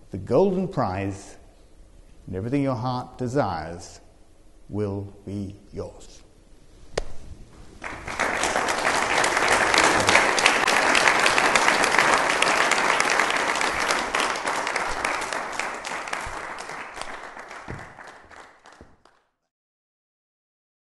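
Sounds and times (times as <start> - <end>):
audience applauding: 7.8 - 19.3.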